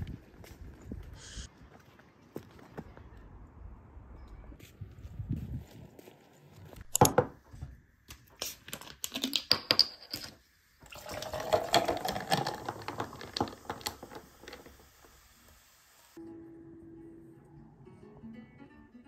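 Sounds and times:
juice pouring over ice: 0:10.8 - 0:15.1
ice cubes clinking into glass: 0:10.9 - 0:14.7.

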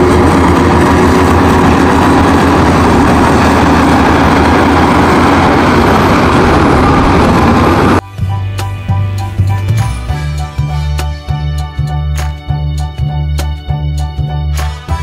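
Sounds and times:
bulldozer diesel engine running: 0:00.0 - 0:08.4.

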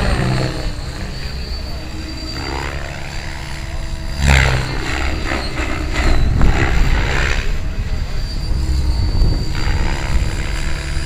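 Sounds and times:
rc helicopter rotor and motor drone: 0:00.0 - 0:11.0.

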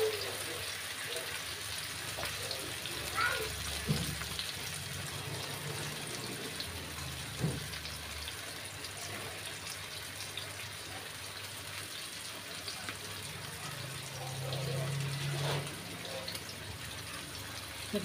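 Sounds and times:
fish sizzling in oil: 0:00.0 - 0:18.0.

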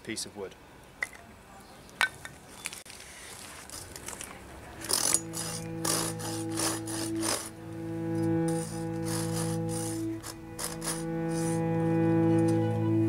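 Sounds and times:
saw rasping through wood: 0:04.9 - 0:11.8.

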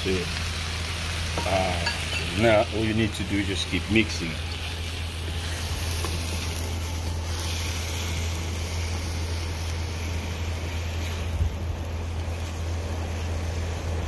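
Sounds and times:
food sizzling in a wok: 0:00.0 - 0:14.0
steady low rumble: 0:00.2 - 0:14.0.

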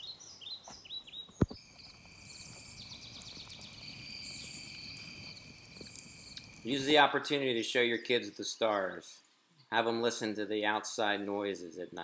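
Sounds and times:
insects trilling: 0:01.2 - 0:08.8.

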